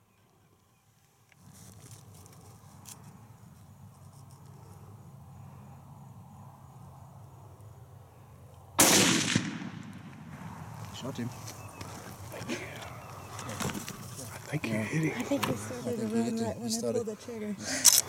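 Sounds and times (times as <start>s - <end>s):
insects chirping: 0.1s - 8.8s, 9.4s - 18.0s
rifle shot: 8.8s - 10.4s.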